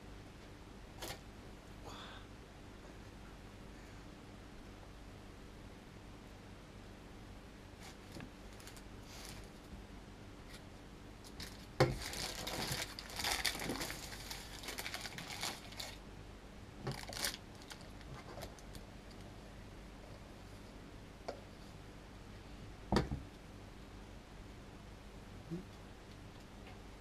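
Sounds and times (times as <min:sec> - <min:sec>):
baking paper crinkling: 0:07.8 - 0:09.7, 0:11.2 - 0:16.0, 0:16.9 - 0:19.3.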